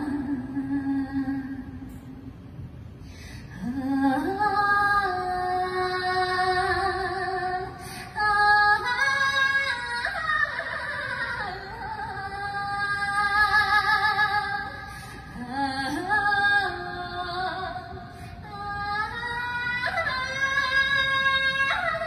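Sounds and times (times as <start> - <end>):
woman singing into microphone: 0.0 - 2.2, 3.4 - 22.0.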